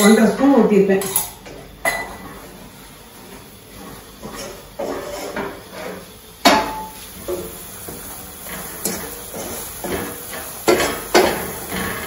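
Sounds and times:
spatula scraping a steel pan: 3.8 - 6.0.

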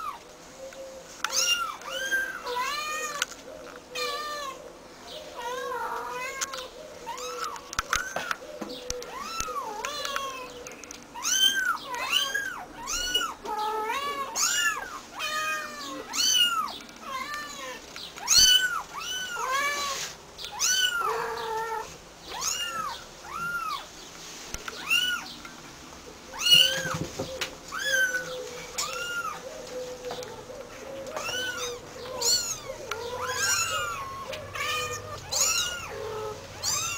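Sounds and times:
kittens mewing: 11.2 - 23.9, 26.3 - 29.4, 30.0 - 36.9.

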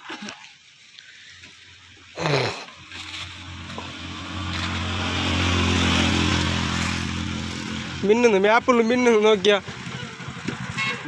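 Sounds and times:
vehicle engine humming: 2.7 - 11.0.

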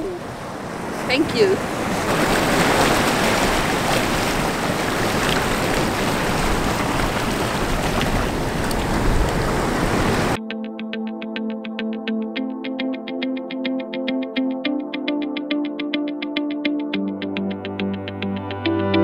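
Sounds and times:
ocean surf on rocks: 0.0 - 10.4
wind buffeting microphone: 0.0 - 10.4
electronic music with beat: 10.4 - 19.0.

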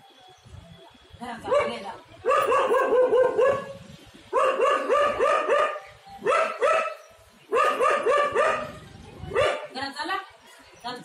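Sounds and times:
dog yapping: 4.4 - 8.8.

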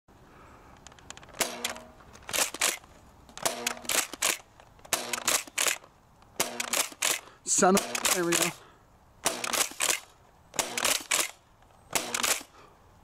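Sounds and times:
foam blaster shots: 11.9 - 12.5.

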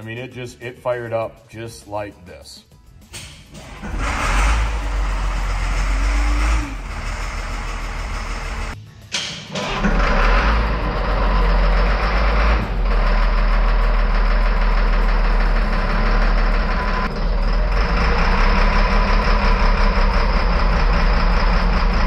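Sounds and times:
diesel engine running: 3.6 - 8.8, 9.6 - 22.0.

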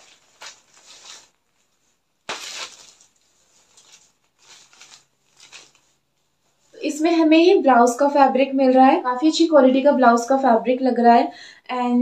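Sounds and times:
fabric rustling: 0.0 - 6.9.

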